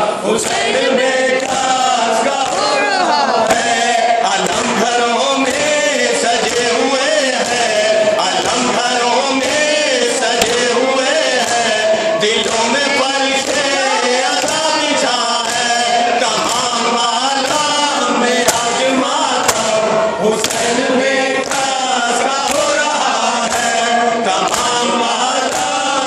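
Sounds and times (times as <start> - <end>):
man singing lament into microphone: 0.0 - 26.0
men chanting along: 0.0 - 26.0
chest-beating strikes: 10.4 - 11.6.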